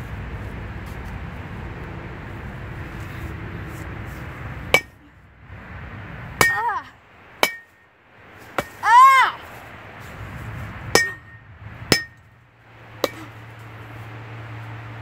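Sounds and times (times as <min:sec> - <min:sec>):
metal bat hitting pumpkin: 0:04.7 - 0:05.0, 0:06.4 - 0:06.7, 0:07.4 - 0:07.8, 0:08.6 - 0:08.9, 0:10.9 - 0:12.3, 0:13.0 - 0:13.4.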